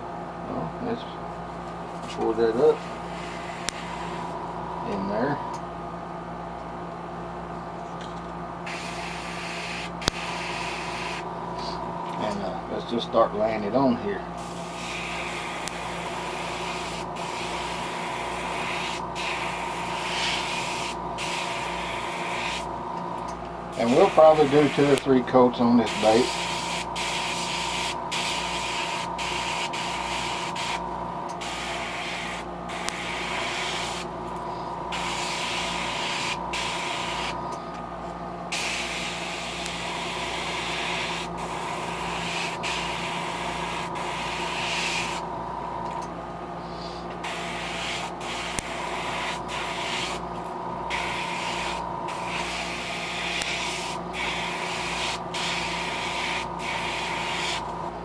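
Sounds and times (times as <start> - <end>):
steady low hum: 0.0 - 58.0
airbrush spraying hiss: 2.8 - 4.4, 8.6 - 11.8, 14.4 - 22.7, 23.7 - 25.0, 25.8 - 30.8, 31.4 - 37.6, 38.5 - 45.2, 46.6 - 50.2, 50.9 - 57.7.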